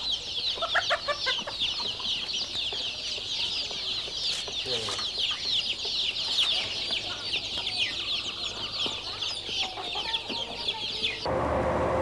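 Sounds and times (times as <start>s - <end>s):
caged birds chirping: 0.0s - 11.3s
engine and street traffic rumble: 0.0s - 12.0s.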